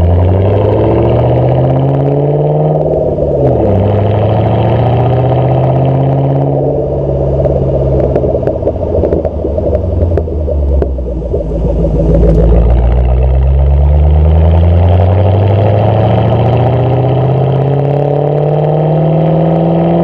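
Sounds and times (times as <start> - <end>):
car engine revving: 0.0 - 20.0
exhaust pops: 2.6 - 17.7.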